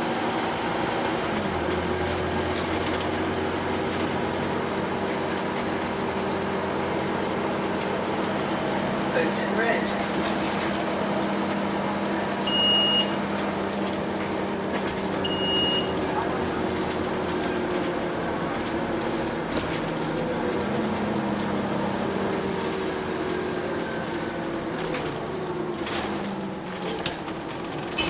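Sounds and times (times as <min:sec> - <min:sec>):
bus engine hum: 0:00.0 - 0:28.0
road rumble: 0:00.0 - 0:28.0
short high beeps: 0:12.5 - 0:13.1, 0:15.3 - 0:15.9.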